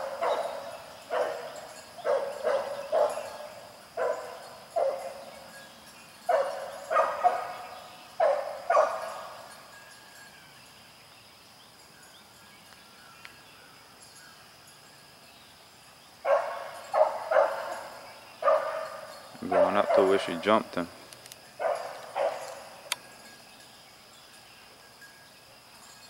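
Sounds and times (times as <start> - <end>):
hound barking: 0.0 - 5.5, 6.3 - 9.5, 16.2 - 20.7, 21.6 - 22.9.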